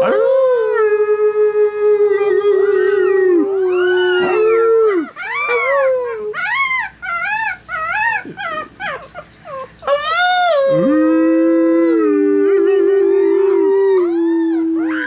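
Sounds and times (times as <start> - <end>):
person howling: 0.0 - 6.4, 9.9 - 15.0
puppies howling: 0.0 - 15.0.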